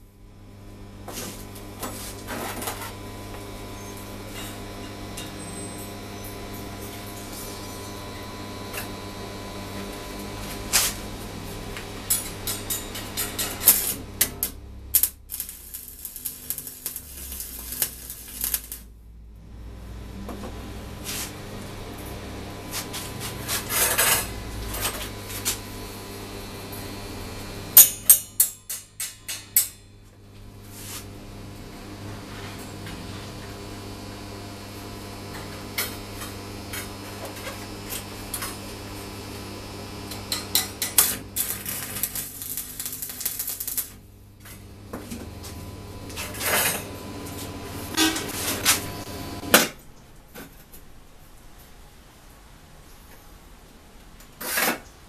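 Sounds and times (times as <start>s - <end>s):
electrical hum: 0.0s - 53.0s.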